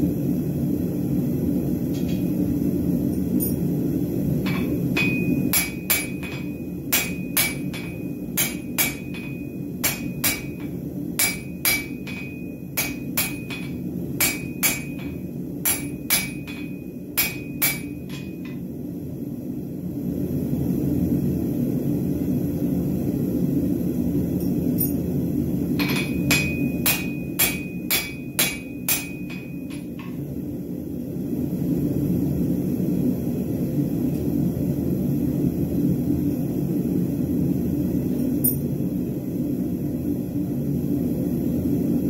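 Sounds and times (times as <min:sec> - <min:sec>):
hammer striking on anvil: 0:04.4 - 0:18.6, 0:25.8 - 0:30.2.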